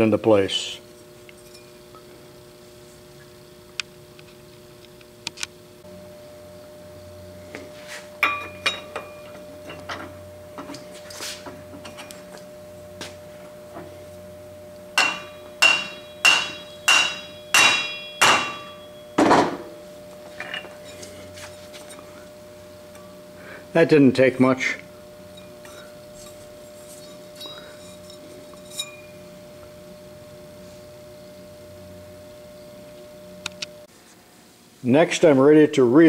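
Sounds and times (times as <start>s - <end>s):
hammer tapping on metal: 15.0s - 18.9s
hammer blows with metallic ring: 15.0s - 19.8s.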